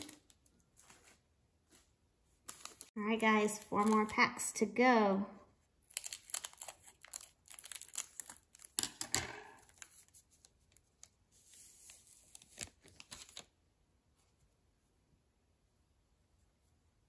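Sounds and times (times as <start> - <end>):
wrapper crinkling: 0.0 - 1.2, 2.4 - 2.9, 5.8 - 10.1
scissors snipping wrapper: 5.8 - 9.9.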